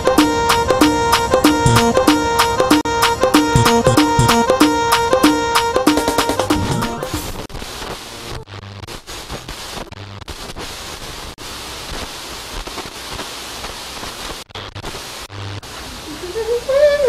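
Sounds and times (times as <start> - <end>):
static-like hiss: 6.2 - 17.0.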